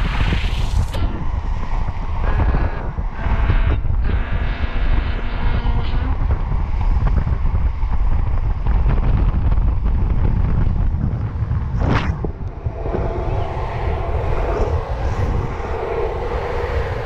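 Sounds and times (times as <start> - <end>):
steady high whine: 0.0 - 5.2, 11.2 - 17.0
wind buffeting microphone: 0.0 - 17.0.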